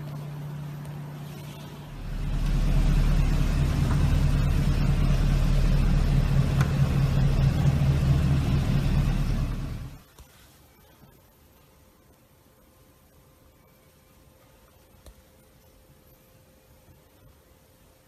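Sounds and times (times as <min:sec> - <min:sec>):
car engine exhaust rumble: 0:00.0 - 0:10.0.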